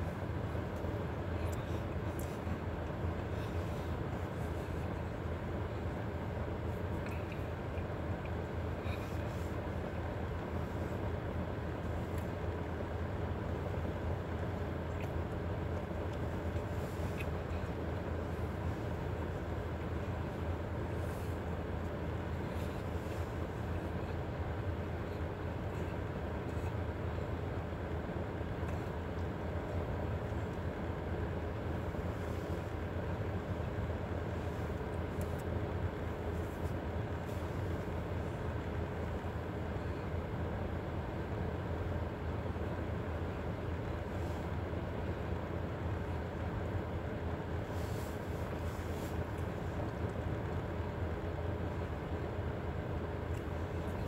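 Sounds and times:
low rumble inside car cabin: 0.0 - 54.0.

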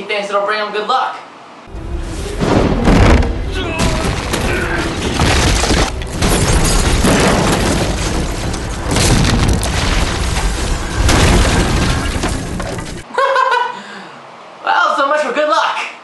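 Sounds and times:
debris crashing: 1.7 - 13.0
heavy explosion booms: 2.4 - 13.0.

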